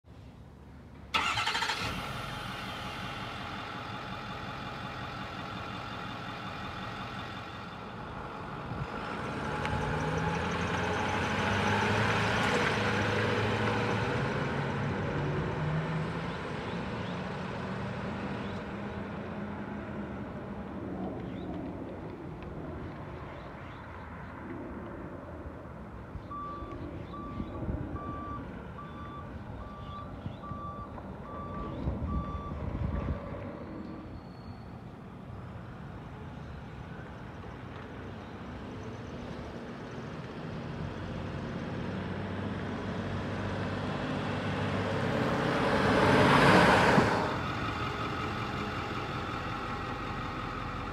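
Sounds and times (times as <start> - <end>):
diesel truck engine: 1.0 - 21.5, 26.3 - 34.2, 35.0 - 50.9.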